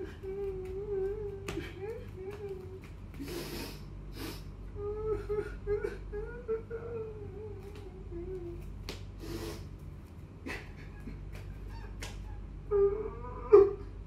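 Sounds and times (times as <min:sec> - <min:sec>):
sniffling breaths: 0:03.1 - 0:04.6, 0:09.2 - 0:11.5
man sobbing: 0:04.8 - 0:08.6.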